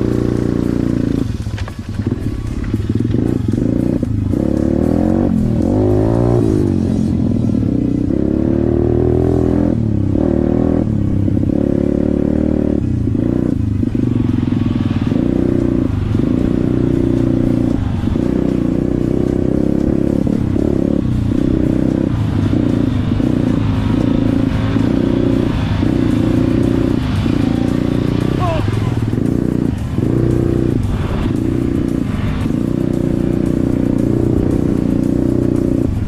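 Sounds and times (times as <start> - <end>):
motorcycle engine revving: 0.0 - 36.0.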